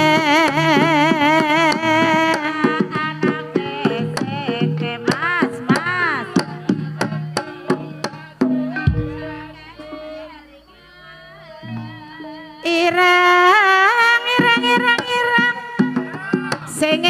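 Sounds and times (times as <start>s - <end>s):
drum strokes: 6.7s - 10.0s.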